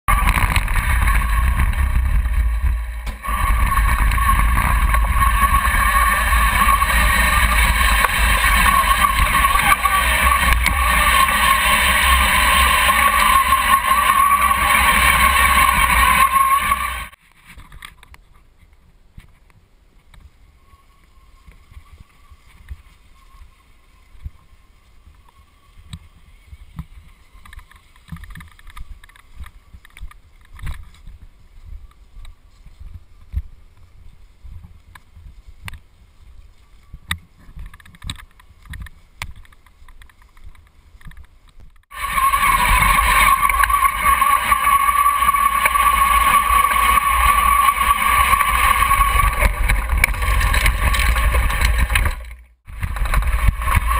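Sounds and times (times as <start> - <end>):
tracks rumbling and rattling: 0.0 - 17.2, 37.3 - 53.9
motor drive whine: 0.1 - 17.2, 41.9 - 53.9
scattered clicks and knocks: 0.1 - 18.2, 37.1 - 53.9.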